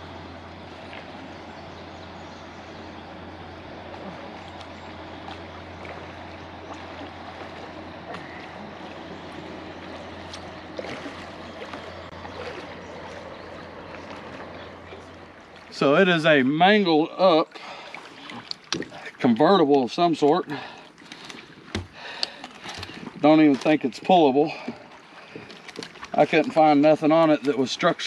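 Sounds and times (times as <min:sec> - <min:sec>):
river water rushing: 0:00.0 - 0:19.4
low hum: 0:00.0 - 0:28.0.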